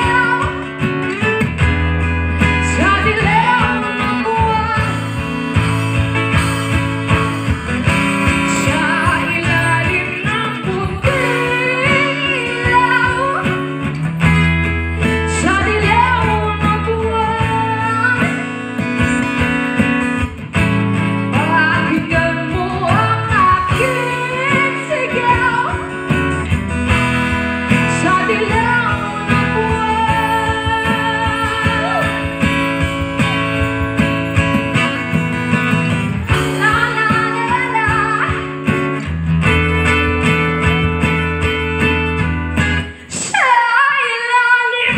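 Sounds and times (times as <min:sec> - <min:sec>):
woman singing into microphone: 0:00.0 - 0:01.7, 0:02.4 - 0:06.1, 0:07.8 - 0:14.0, 0:15.0 - 0:20.3, 0:21.0 - 0:34.8, 0:36.2 - 0:39.0, 0:42.9 - 0:44.9
guitar: 0:00.0 - 0:44.9
low bass notes: 0:25.8 - 0:43.0.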